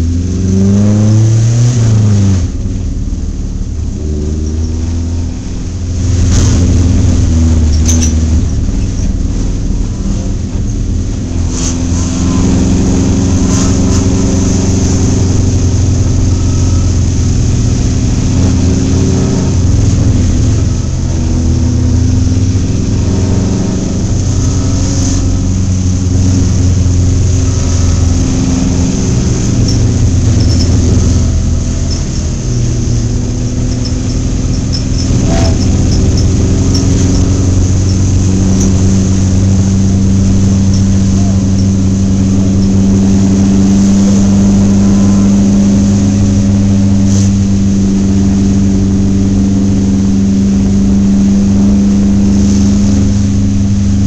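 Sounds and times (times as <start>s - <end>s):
race car engine from inside: 0.0s - 54.0s
car knocks and rattles: 25.5s - 46.7s.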